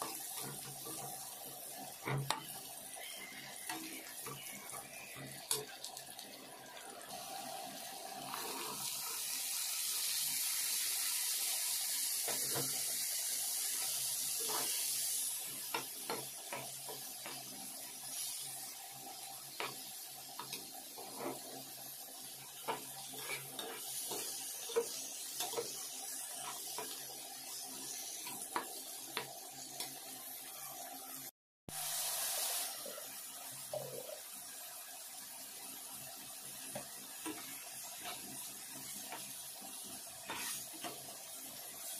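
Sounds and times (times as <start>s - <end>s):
vegetables sizzling in hot oil: 0.0s - 41.9s
metal spatula scraping pan: 20.4s - 21.5s, 22.6s - 25.8s, 40.2s - 41.0s.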